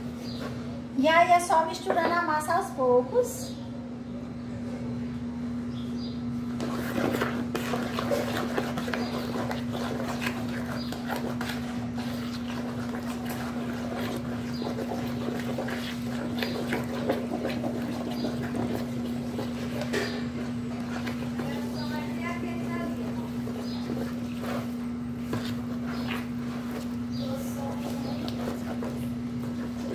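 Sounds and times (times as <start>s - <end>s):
wooden spoon scraping dough bowl: 6.5s - 29.9s.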